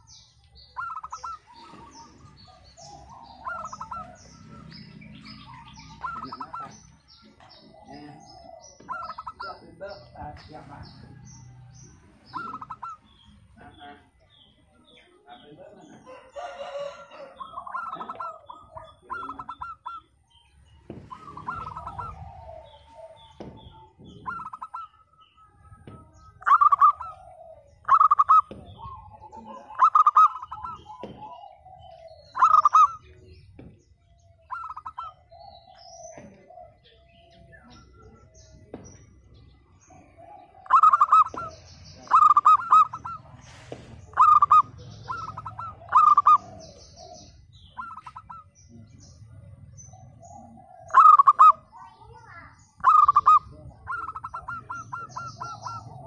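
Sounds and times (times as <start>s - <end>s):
dove cooing: 0.0s - 11.1s, 12.0s - 13.4s, 15.9s - 56.0s.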